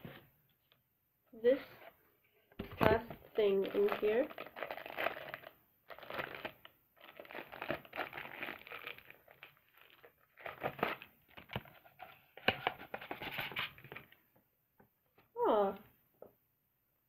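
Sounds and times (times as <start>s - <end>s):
plastic wrapping crinkling: 2.8s - 11.9s.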